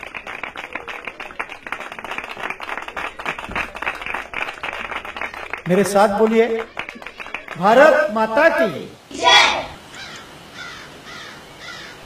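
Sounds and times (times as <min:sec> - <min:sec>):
crowd applauding: 0:00.0 - 0:08.1.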